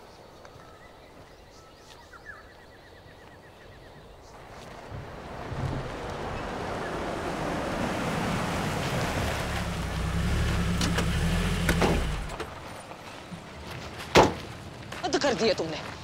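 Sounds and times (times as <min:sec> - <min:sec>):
tyres on gravel: 0:04.3 - 0:16.0
vehicle engine: 0:05.4 - 0:12.8.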